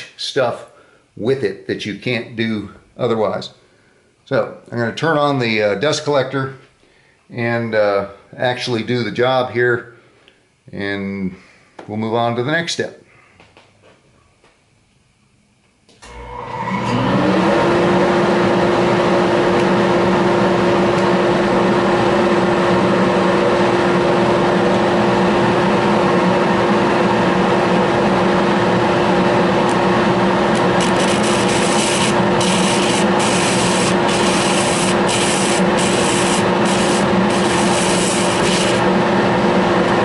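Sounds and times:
dust collector whining: 0:16.0 - 0:40.0
sanding disc scrapes: 0:30.7 - 0:38.8.

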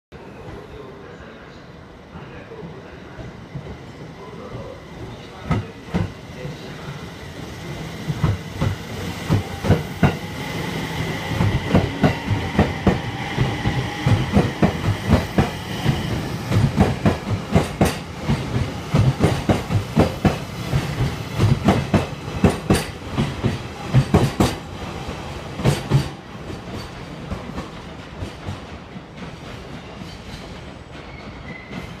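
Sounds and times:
train wheels clattering over rail joints: 0:11.4 - 0:24.6, 0:25.6 - 0:32.0.

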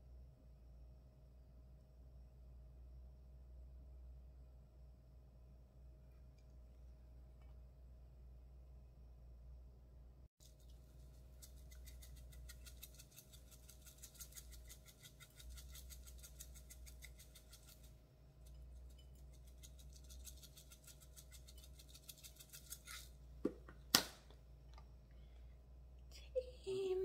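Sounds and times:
objects knocking on counter: 0:23.4 - 0:24.1.

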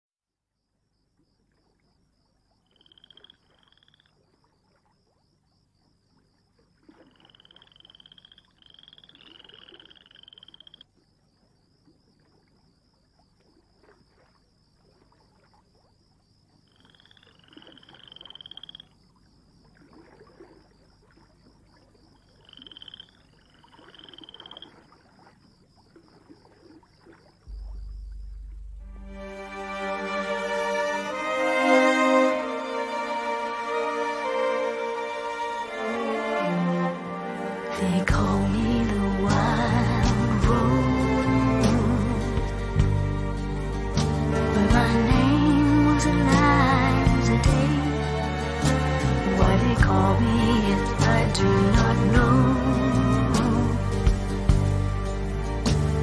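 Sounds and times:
frogs croaking: 0:00.4 - 0:53.0
high pulsing trill: 0:27.5 - 0:30.0.

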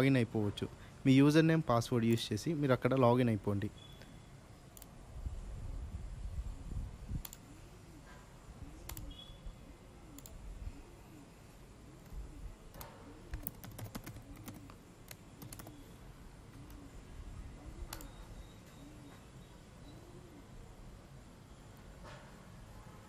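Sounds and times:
computer keyboard keystrokes: 0:08.9 - 0:09.1, 0:12.7 - 0:15.8.

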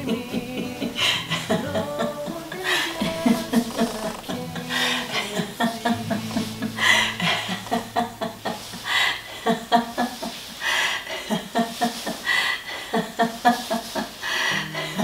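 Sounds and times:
people laughing: 0:00.0 - 0:10.5, 0:11.1 - 0:15.0.

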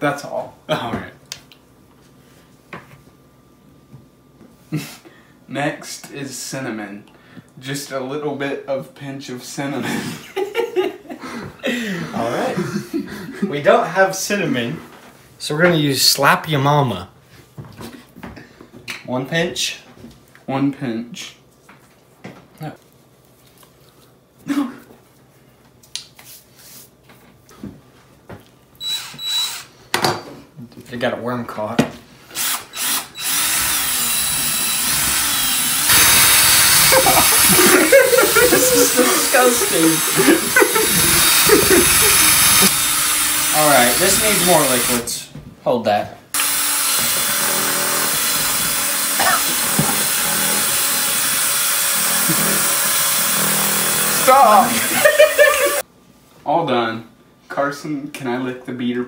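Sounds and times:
cordless drill mixing batter: 0:28.8 - 0:29.7, 0:32.3 - 0:45.2, 0:46.4 - 0:55.8.

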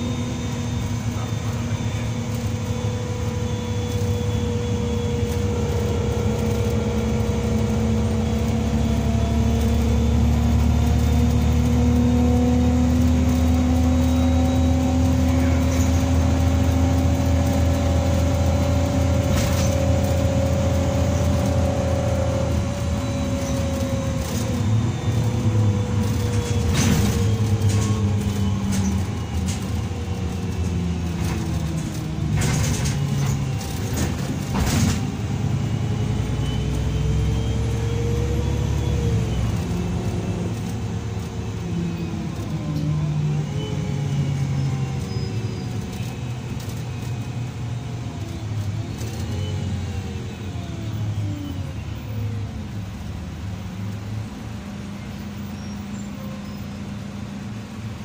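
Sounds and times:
bus diesel engine: 0:00.0 - 0:58.0
drivetrain whine: 0:00.0 - 0:58.0
knocks and rattles from bus body: 0:03.9 - 0:35.8.

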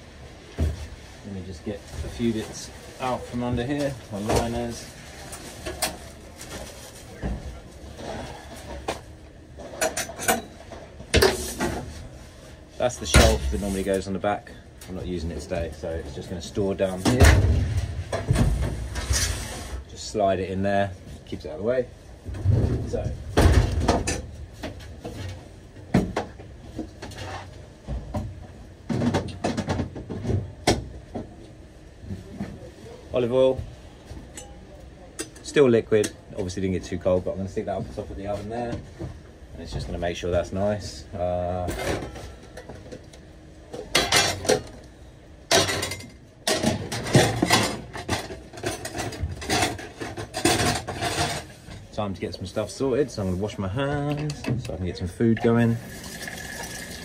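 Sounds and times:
items knocking and clattering in cupboard: 0:00.5 - 0:01.0, 0:16.9 - 0:19.5, 0:22.2 - 0:31.4, 0:45.5 - 0:51.6
containers and metal bowl clattering: 0:45.5 - 0:51.7, 0:54.3 - 0:57.0.

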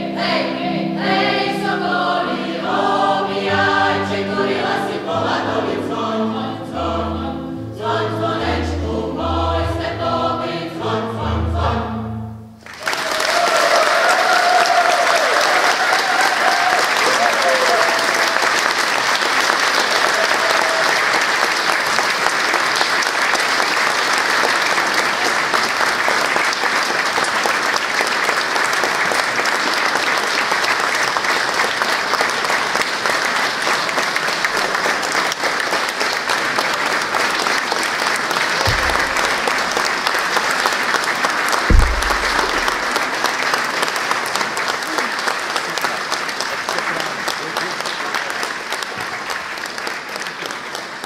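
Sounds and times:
audience applauding: 0:12.6 - 0:51.0
low thump: 0:38.7 - 0:39.8, 0:41.7 - 0:42.9.

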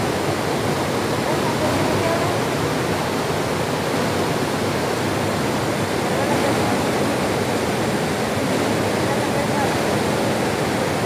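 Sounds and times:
water rushing over rocks: 0:00.0 - 0:11.0.

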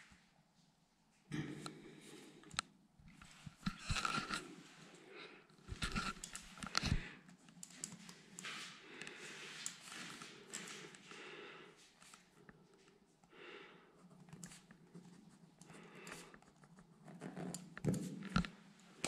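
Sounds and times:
shuffling and handling noises: 0:03.0 - 0:11.2.

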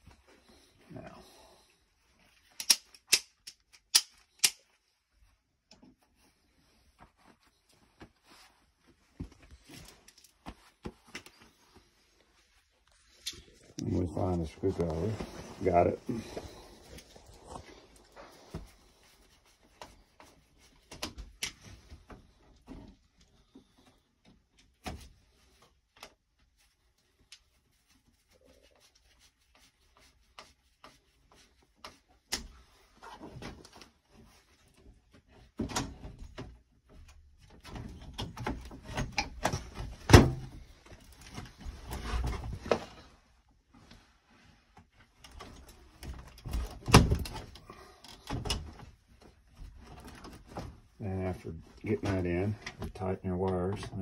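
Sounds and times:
clicks and scrapes of hand work: 0:02.4 - 0:04.7.

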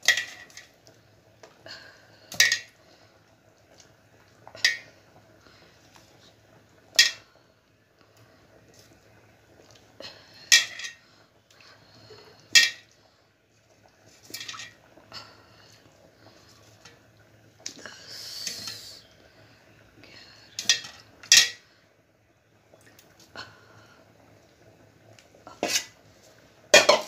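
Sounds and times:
utensils clinking on pots: 0:00.0 - 0:00.7, 0:02.4 - 0:02.8, 0:07.0 - 0:07.2, 0:10.4 - 0:11.0, 0:12.6 - 0:12.9, 0:20.6 - 0:21.6, 0:26.8 - 0:27.0.

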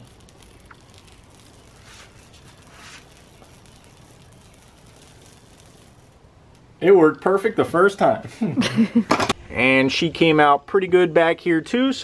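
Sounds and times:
soft rustles: 0:01.5 - 0:03.8.

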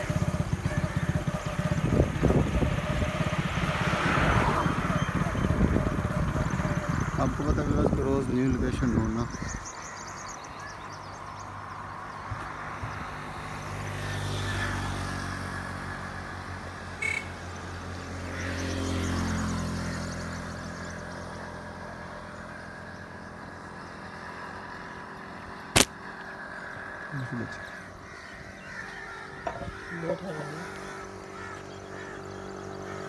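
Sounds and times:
vehicle engine passing: 0:00.0 - 0:09.4, 0:11.5 - 0:33.0
sharp crack: 0:25.7 - 0:26.1.

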